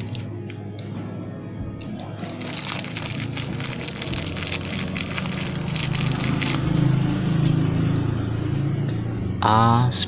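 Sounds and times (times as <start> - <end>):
plastic bag crinkling: 1.8 - 6.7.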